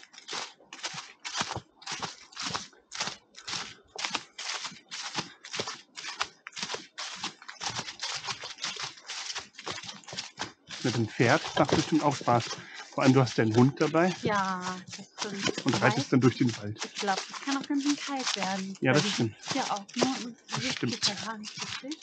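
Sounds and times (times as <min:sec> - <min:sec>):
footsteps on forest path: 0:00.0 - 0:22.0.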